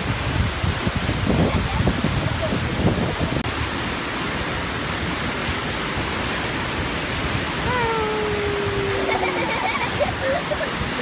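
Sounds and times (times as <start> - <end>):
churning sea surf: 0.0 - 11.0
waterfall rushing: 0.0 - 11.0
person calling out: 7.6 - 9.8.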